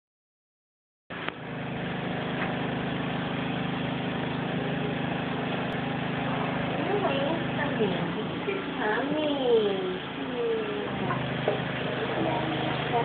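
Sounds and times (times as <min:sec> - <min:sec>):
faucet sprayer running water into sink: 0:10.9 - 0:13.0.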